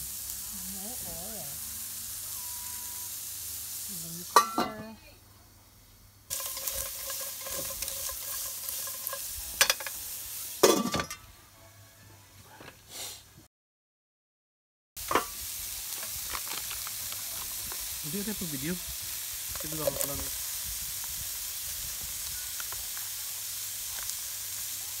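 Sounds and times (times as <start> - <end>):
onion and garlic sizzling in a pan: 0.0 - 11.3, 15.0 - 25.0
metal lid clanking onto pan: 4.4 - 4.8, 6.3 - 10.0, 10.6 - 11.2.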